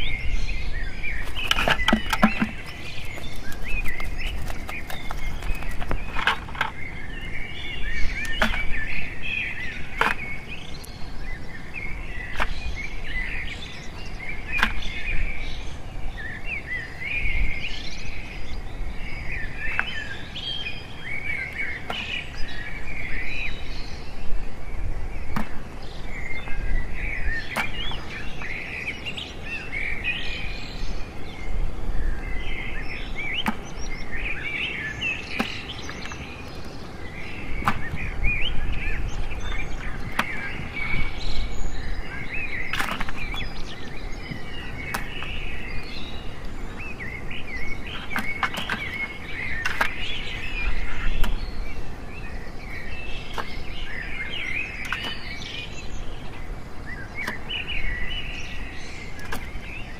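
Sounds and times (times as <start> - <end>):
small birds chirping: 0.0 - 59.9
crabs clicking in plastic bucket: 1.2 - 6.8.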